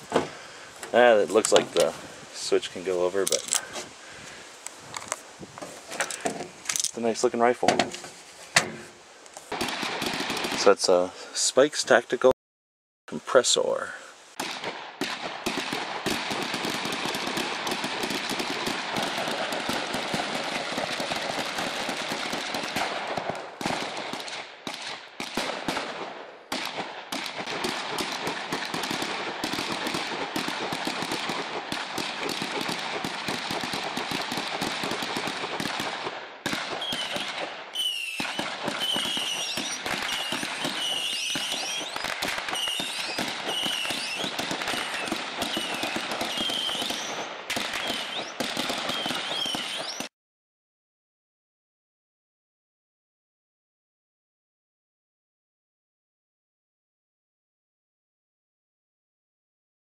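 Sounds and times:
rapid suppressed rifle shots: 9.5 - 11.0, 14.4 - 37.6, 38.2 - 50.1.

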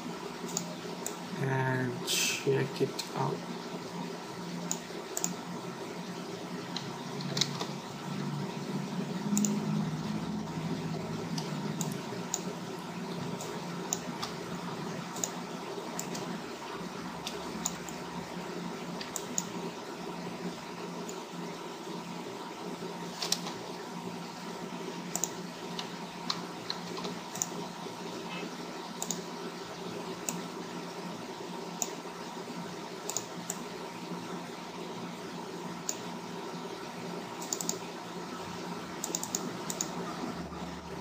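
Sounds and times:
low electrical hum: 0.0 - 41.0
keyboard and mouse clicks: 0.5 - 1.2, 4.7 - 5.4, 6.7 - 7.8, 9.3 - 9.6, 11.3 - 12.5, 13.4 - 14.4, 15.1 - 16.3, 17.2 - 18.0, 19.0 - 19.6, 23.1 - 23.6, 25.1 - 27.6, 29.0 - 29.3, 33.0 - 33.6, 37.4 - 37.8, 39.0 - 40.0.

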